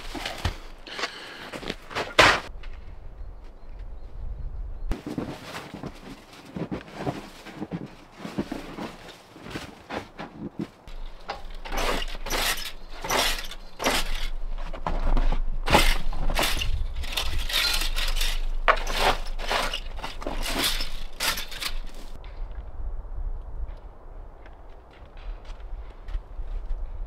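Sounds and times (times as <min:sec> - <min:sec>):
shovel scraping snow on stone: 0:05.0 - 0:14.5, 0:15.1 - 0:22.2.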